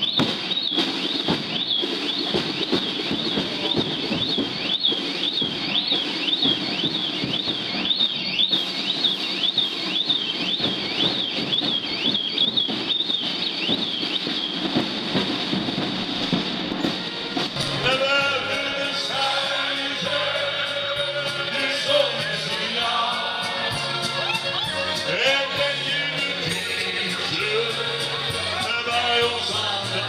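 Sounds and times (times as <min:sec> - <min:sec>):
busy background noise: 0:00.0 - 0:30.0
crowd singing along to music: 0:17.5 - 0:30.0.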